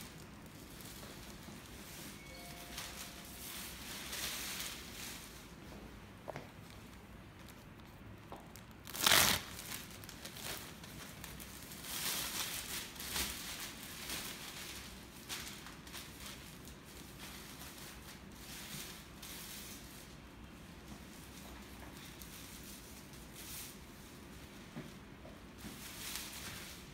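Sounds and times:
plastic film crinkling: 0.0s - 5.6s, 7.4s - 20.2s, 25.7s - 26.9s
plastic apron tearing: 8.8s - 16.2s.

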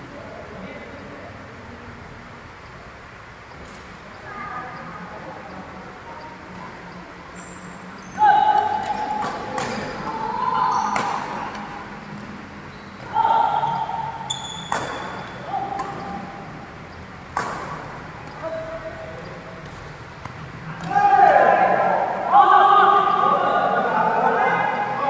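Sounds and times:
racket striking shuttlecock: 10.9s - 11.7s, 14.6s - 16.3s, 17.3s - 18.4s
shoe squeaks on court floor: 14.2s - 15.5s.

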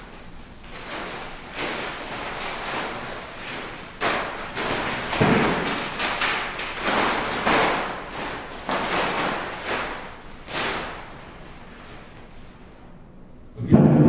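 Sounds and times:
cloth rustling and flapping: 0.0s - 13.0s
thuds on hard floor: 5.1s - 5.8s.

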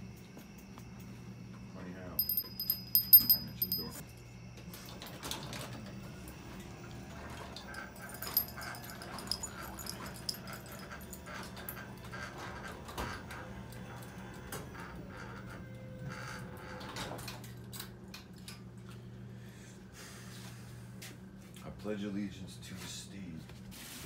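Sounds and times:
low electrical hum: 0.0s - 24.0s
keys jingling: 2.2s - 4.0s, 7.7s - 11.8s.

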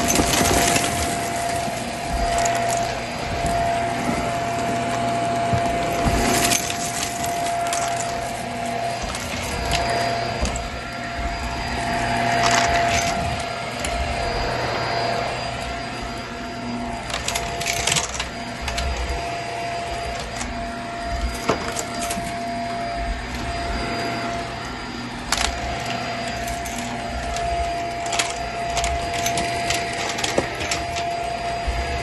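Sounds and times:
debris crackling in vacuum: 0.0s - 15.8s
vacuum cleaner whine: 0.0s - 32.0s.

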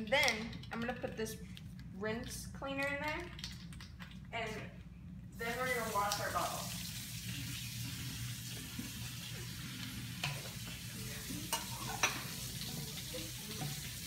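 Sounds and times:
tap water running: 5.4s - 14.0s.

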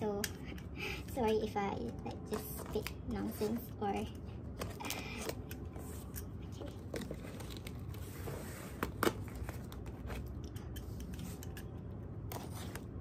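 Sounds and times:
cardboard scraping and rustling: 5.8s - 10.2s.

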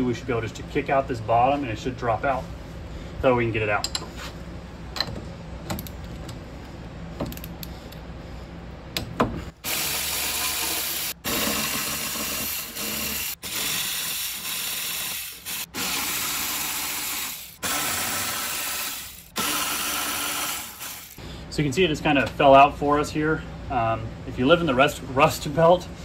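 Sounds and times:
electric ratchet spinning bolts: 9.6s - 21.2s.

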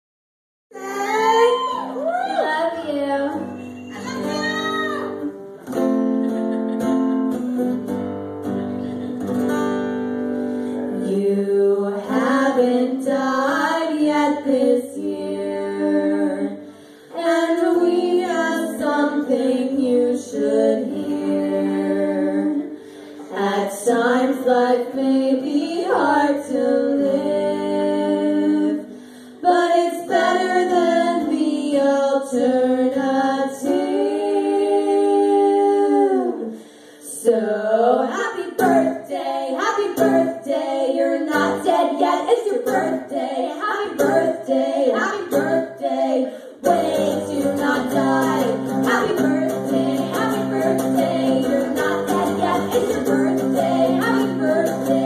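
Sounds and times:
two women singing: 0.7s - 5.3s, 10.8s - 55.0s
acoustic guitar chords: 3.0s - 25.1s, 38.1s - 55.0s.

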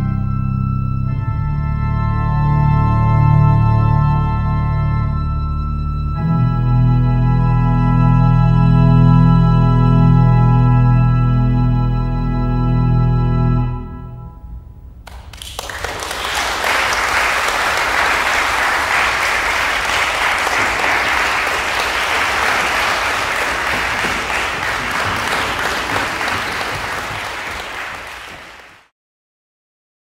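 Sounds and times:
audience applauding: 15.1s - 28.9s.

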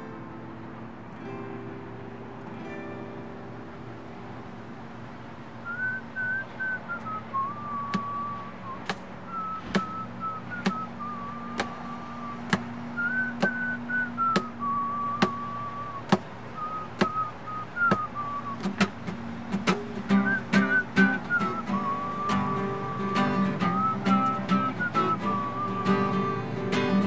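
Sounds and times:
low hum: 4.2s - 18.7s
person whistling a slow tune: 5.6s - 18.9s, 20.1s - 27.0s
sharp rhythmic taps: 7.0s - 26.1s.

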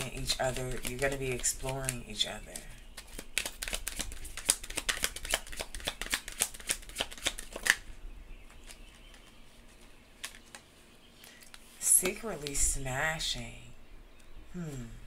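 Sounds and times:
cards shuffling: 0.0s - 7.8s, 8.5s - 12.6s.

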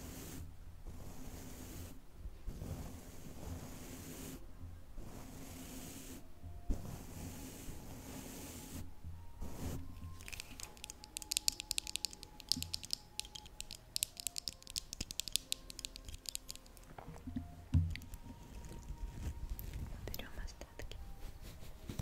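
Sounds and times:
soft background music: 0.0s - 22.0s
rapid tapping and clicking: 10.2s - 18.3s
soft thumps: 16.9s - 20.0s.

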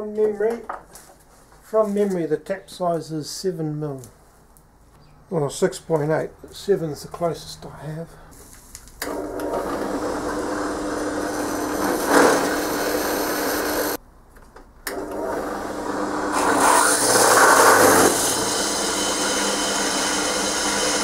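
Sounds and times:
drill press motor running: 9.0s - 14.0s, 14.9s - 21.0s
drill bit cutting into metal: 16.3s - 21.0s.

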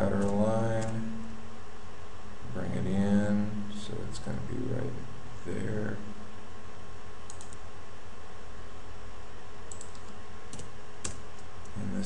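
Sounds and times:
keyboard and mouse clicks: 7.3s - 7.6s, 9.7s - 11.8s.

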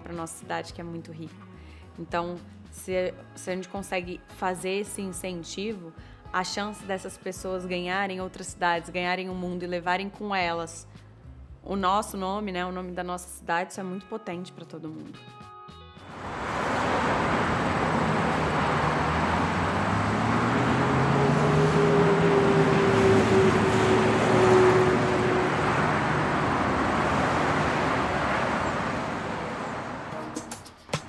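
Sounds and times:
vehicle engine and tyre noise: 16.1s - 30.5s.

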